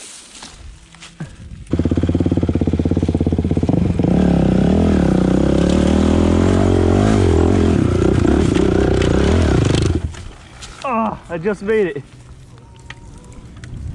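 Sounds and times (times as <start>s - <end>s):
dirt bike engine revving: 1.7s - 10.1s.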